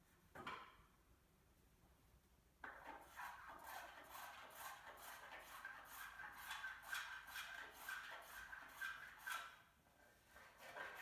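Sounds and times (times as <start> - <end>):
hand tool scraping wood: 2.6 - 11.0.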